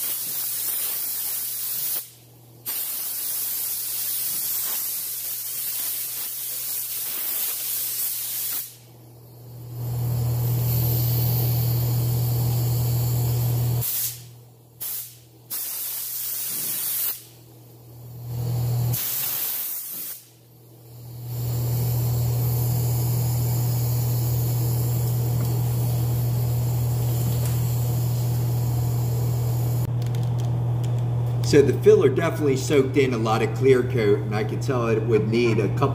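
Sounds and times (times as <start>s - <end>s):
paint spray gun hissing: 0.0s - 8.8s, 10.3s - 17.4s, 18.8s - 20.4s, 21.0s - 29.9s
steady low hum: 8.8s - 15.5s, 20.3s - 35.9s.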